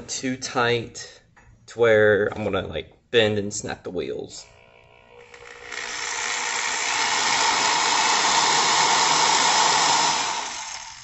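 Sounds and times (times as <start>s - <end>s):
electric drill running: 4.4s - 11.0s.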